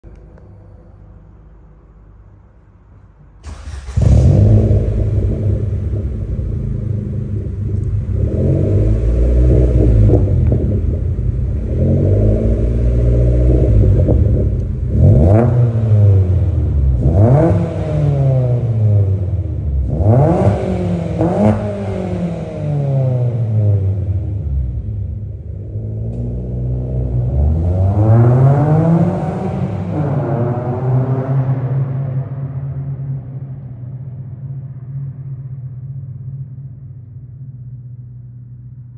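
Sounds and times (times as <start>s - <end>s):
car engine starting and idling: 0.0s - 38.9s.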